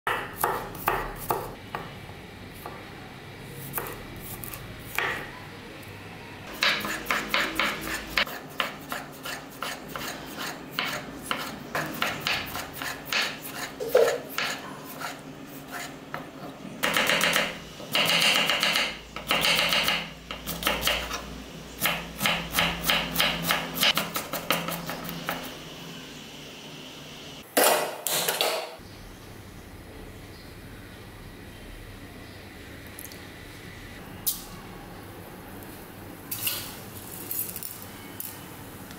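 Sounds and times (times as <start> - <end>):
knife chopping on wooden board: 0.1 - 1.9, 6.5 - 15.1, 21.8 - 25.4
knife scraping on board: 6.6 - 16.2.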